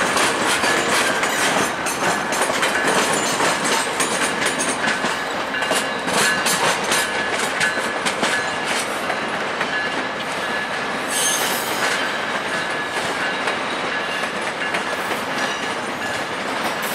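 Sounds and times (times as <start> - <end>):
train wheels clacking over switches: 0.0 - 10.4, 11.3 - 16.9
wheel squeal: 11.1 - 12.1.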